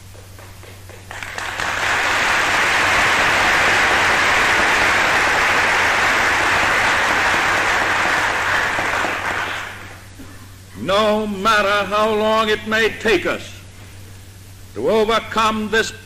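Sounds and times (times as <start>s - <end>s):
audience applause: 0.3s - 10.0s.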